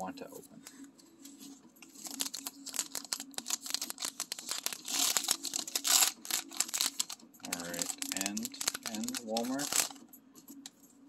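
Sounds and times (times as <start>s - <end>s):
foil wrapper crinkling: 1.8s - 10.0s
foil wrapper tearing: 1.9s - 10.0s.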